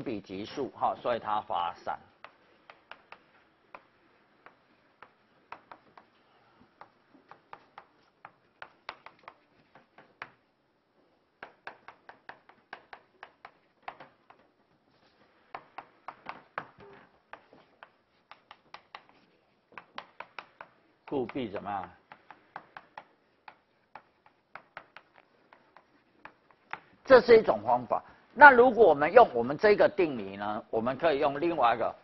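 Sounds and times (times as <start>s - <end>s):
chalk tapping on chalkboard: 2.2s - 10.5s, 11.4s - 27.0s.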